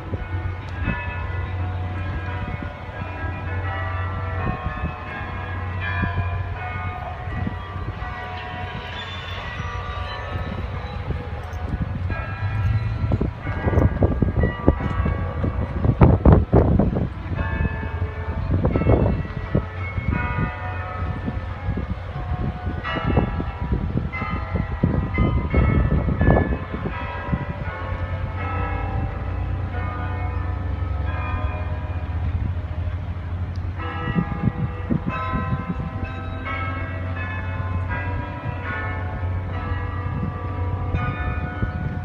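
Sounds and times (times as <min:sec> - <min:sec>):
bells ringing: 0:00.0 - 0:42.0.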